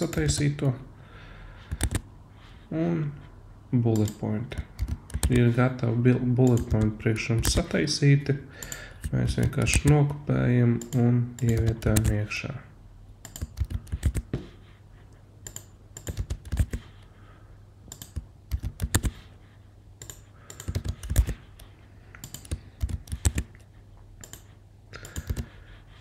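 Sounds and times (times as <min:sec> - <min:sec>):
computer keyboard keys pressed: 0:01.7 - 0:02.0, 0:04.0 - 0:05.4, 0:06.4 - 0:07.7, 0:08.6 - 0:10.0, 0:10.8 - 0:12.2, 0:13.2 - 0:14.3, 0:15.4 - 0:16.8, 0:17.9 - 0:19.2, 0:20.0 - 0:23.6, 0:24.2 - 0:25.6.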